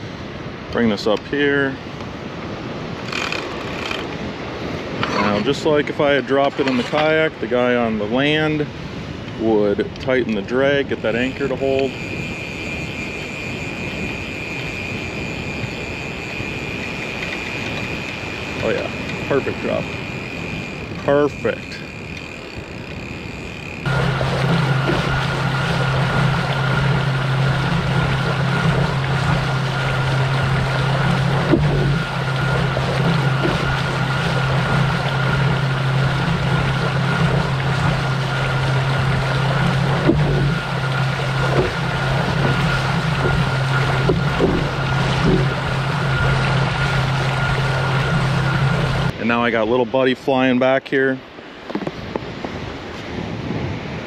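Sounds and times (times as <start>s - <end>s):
motor hum with high whine: 0.0s - 50.0s
wind rush: 51.2s - 54.0s.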